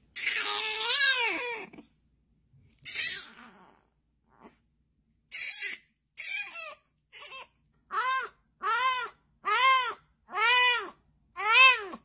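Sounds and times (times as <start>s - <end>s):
puppy yipping: 5.3s - 12.0s
puppy howling: 7.9s - 12.0s.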